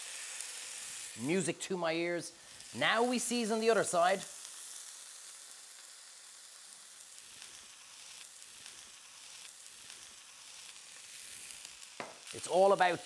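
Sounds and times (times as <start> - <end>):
steak sizzling in a pan: 0.0 - 13.0.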